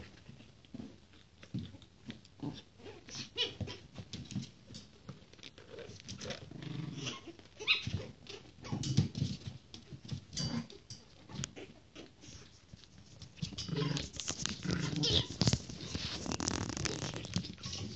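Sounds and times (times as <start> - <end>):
puppies growling: 5.6 - 8.8, 13.6 - 17.9
puppies yipping: 7.0 - 8.5
scuffling paws: 11.2 - 17.9.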